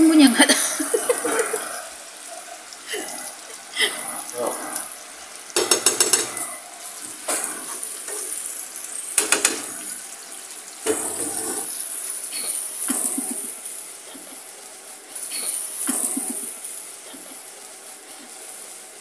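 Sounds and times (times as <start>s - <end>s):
onions sizzling in a frying pan: 0.0s - 19.0s
spatula tapping a pan: 5.6s - 6.4s, 9.1s - 9.8s
spatula scraping a pan: 10.9s - 11.8s.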